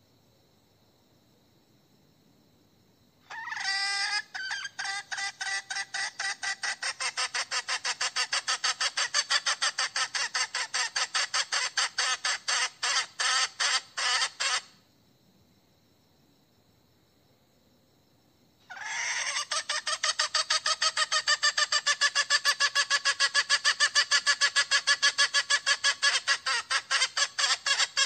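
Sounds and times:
hen calling: 3.3 - 14.7, 18.7 - 28.0.

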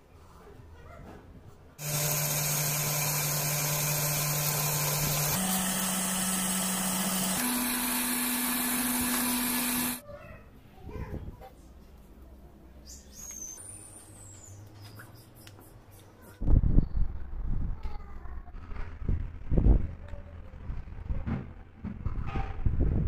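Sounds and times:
drill press motor hum: 1.8 - 10.0.

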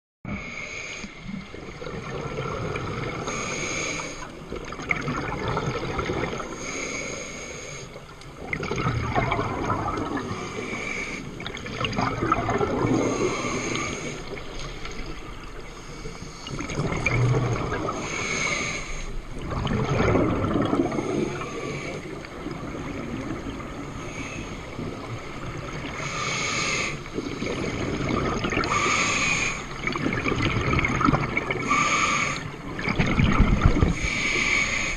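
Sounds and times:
hissing inhale through regulator: 0.3 - 1.6, 3.0 - 4.4, 6.3 - 8.3, 10.0 - 11.7, 12.8 - 15.0, 15.6 - 16.8, 17.8 - 19.3, 20.8 - 22.6, 23.8 - 29.8, 31.4 - 32.7, 33.8 - 34.9
bubbling exhalation underwater: 4.5 - 6.5, 8.4 - 10.4, 11.4 - 13.5, 16.5 - 18.0, 19.4 - 21.4, 27.4 - 28.8, 29.8 - 31.6, 32.7 - 34.0.

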